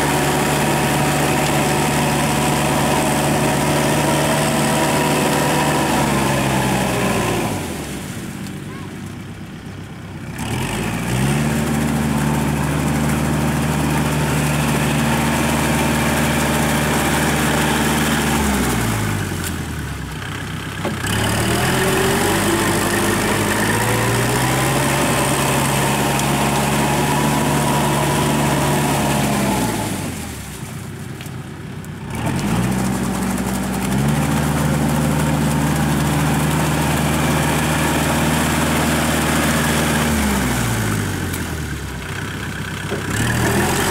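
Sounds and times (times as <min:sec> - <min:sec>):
rotary tiller churning mud: 0:00.0 - 0:43.9
tractor diesel engine: 0:00.0 - 0:43.9.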